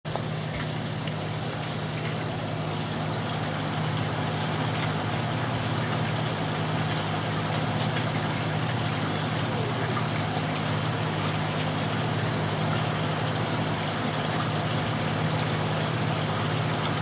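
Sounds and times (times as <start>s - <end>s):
aquarium equipment humming: 0.1s - 17.0s.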